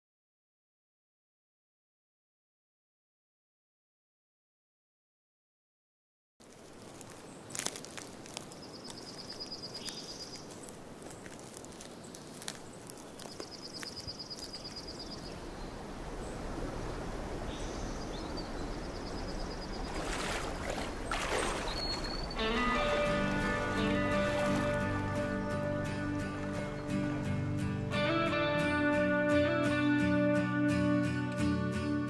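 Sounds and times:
footsteps on forest floor: 6.4 - 14.9, 19.9 - 27.0
stream rushing: 9.4 - 28.3.

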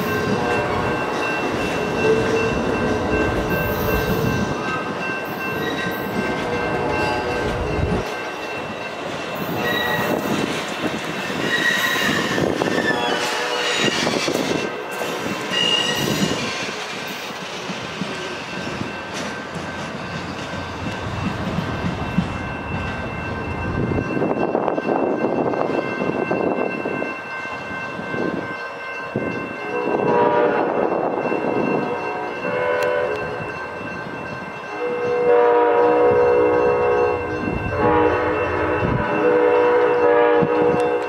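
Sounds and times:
train cars rolling on rails: 0.0 - 41.0.

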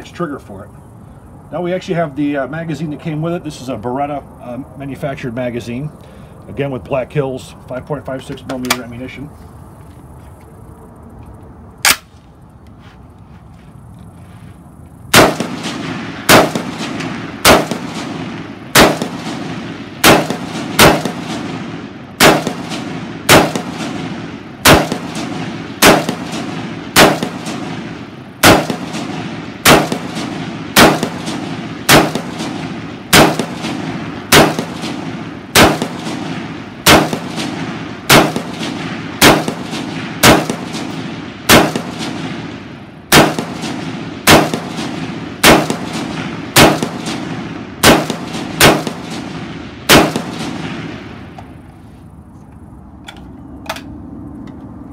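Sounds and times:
rifle shots with echo: 11.8 - 12.1, 15.1 - 51.4.

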